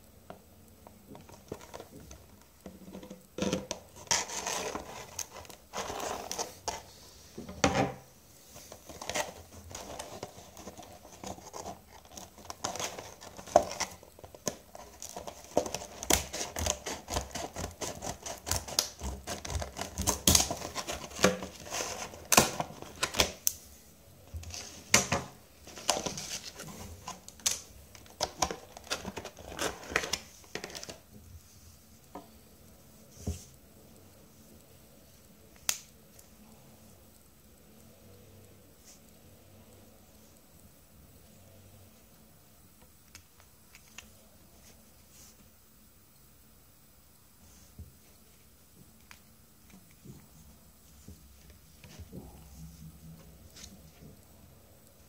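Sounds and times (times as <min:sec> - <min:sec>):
plastic crackling and crinkling: 0:00.0 - 0:32.2
scissors snipping plastic: 0:11.6 - 0:21.6.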